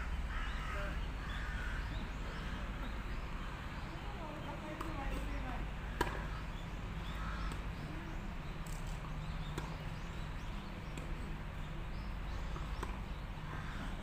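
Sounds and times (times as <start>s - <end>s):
tennis balls struck with rackets: 4.6s - 5.3s, 5.9s - 6.4s, 7.4s - 7.9s, 8.6s - 11.4s, 12.4s - 13.2s.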